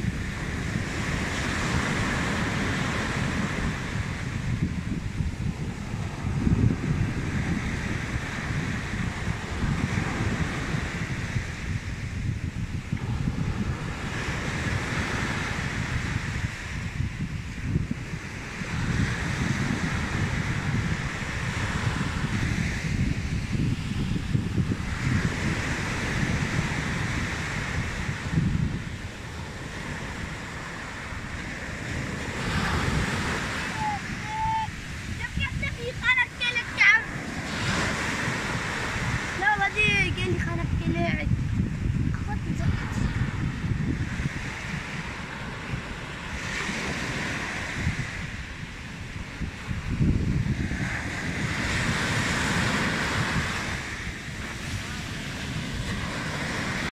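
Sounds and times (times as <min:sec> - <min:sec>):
sea waves breaking on beach: 0:00.0 - 0:56.9
wind rumble on microphone: 0:00.0 - 0:56.9
short high calls: 0:33.6 - 0:34.9.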